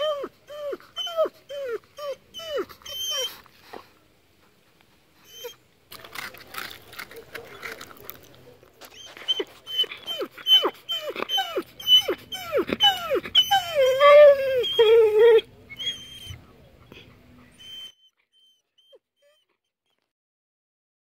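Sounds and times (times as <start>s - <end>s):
dog whining: 0.0s - 3.5s, 5.2s - 5.6s, 8.9s - 16.4s, 17.0s - 20.0s.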